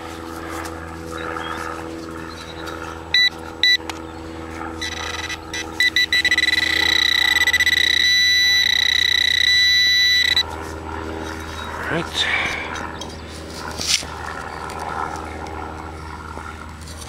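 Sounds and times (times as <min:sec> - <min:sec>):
metal detector beeping: 0:02.3 - 0:04.0, 0:04.8 - 0:10.6.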